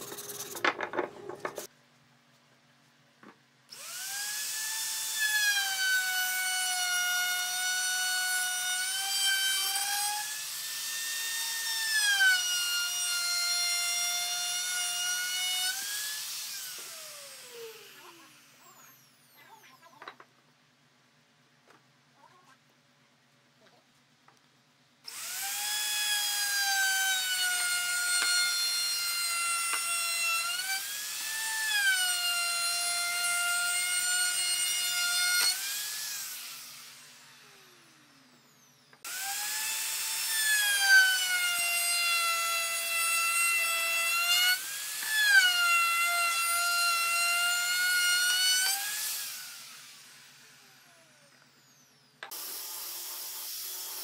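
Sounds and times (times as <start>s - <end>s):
angle grinder sanding wood: 0.0s - 1.7s, 15.1s - 19.1s
wood router whining: 3.7s - 20.2s, 25.1s - 54.0s.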